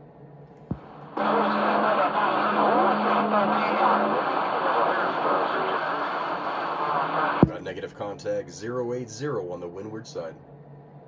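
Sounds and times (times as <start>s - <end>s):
radio static with hum: 0.7s - 8.0s
faint warbling voices: 1.2s - 7.5s.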